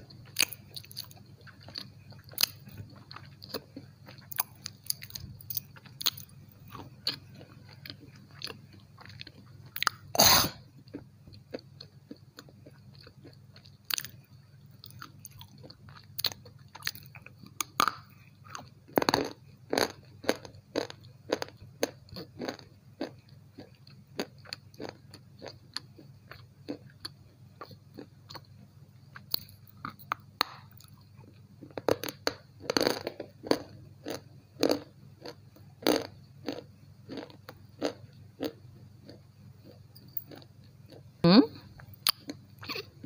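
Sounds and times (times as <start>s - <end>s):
steady low hum: 0.0s - 43.0s
pencil being chewed crunching: 29.2s - 41.1s.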